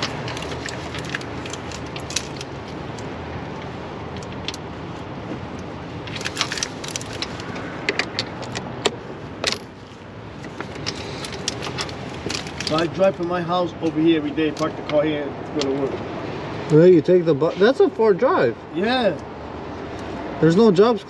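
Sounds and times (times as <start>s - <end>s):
rushing background noise: 0.0s - 21.0s
metallic clinks and clicks: 7.9s - 9.9s.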